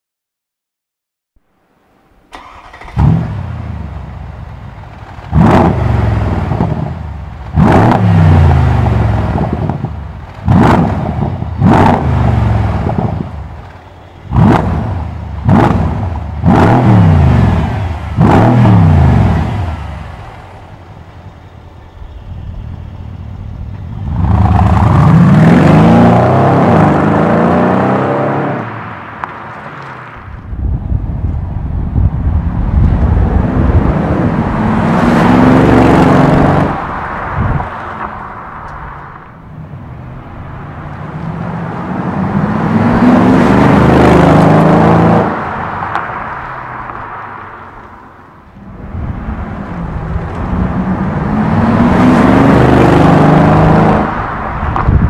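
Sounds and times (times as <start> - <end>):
car accelerating away: 2.3 - 3.9, 5.2 - 9.8, 10.4 - 13.2, 14.3 - 20.0, 23.8 - 28.8, 33.1 - 37.1, 40.9 - 47.0, 48.7 - 54.8
car engine revving and idling: 2.3 - 28.8, 39.6 - 55.0.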